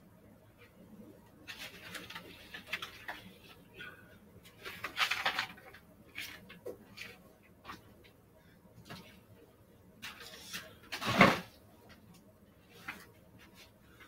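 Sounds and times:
papers and books rustling: 1.4 - 3.7, 4.4 - 8.2, 10.0 - 14.0.

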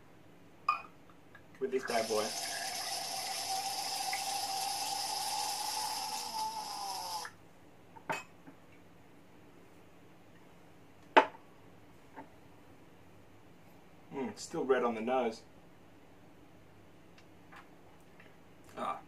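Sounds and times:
wine pouring through aerator: 1.7 - 7.3.

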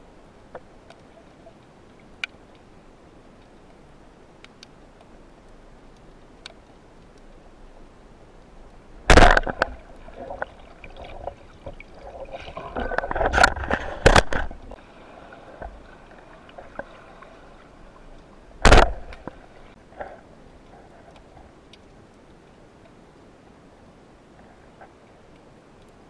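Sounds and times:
speargun firing crack: 9.1 - 9.7, 18.6 - 19.2.

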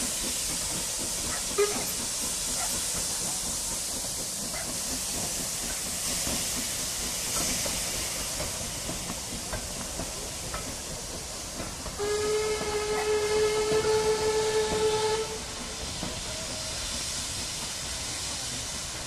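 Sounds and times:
faint train clicks: 0.0 - 19.0
steam hissing: 0.0 - 19.0
steam whistle: 1.5 - 2.0, 12.0 - 15.6.

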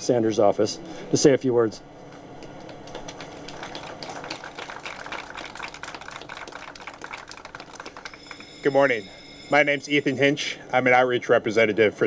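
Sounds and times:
crowd applauding: 2.5 - 9.1.

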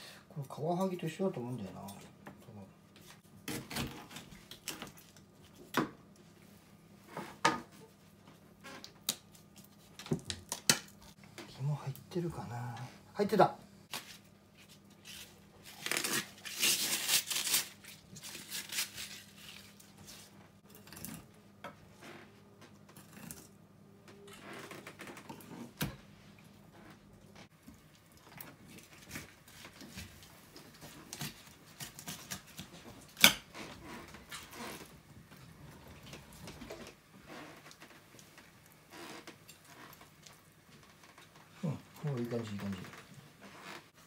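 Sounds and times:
plastic bag crinkling: 15.1 - 19.9.

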